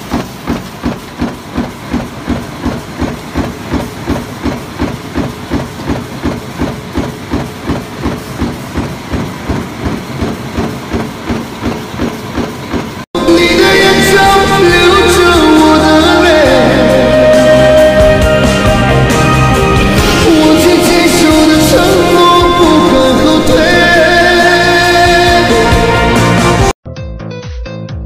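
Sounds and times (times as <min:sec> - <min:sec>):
stamping press punching: 0:00.0 - 0:13.0.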